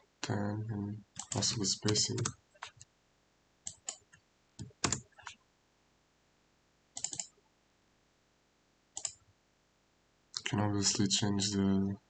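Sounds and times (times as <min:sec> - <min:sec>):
computer mouse and keyboard clicking: 0:01.2 - 0:02.8, 0:03.7 - 0:05.4, 0:07.0 - 0:07.3, 0:09.0 - 0:09.2.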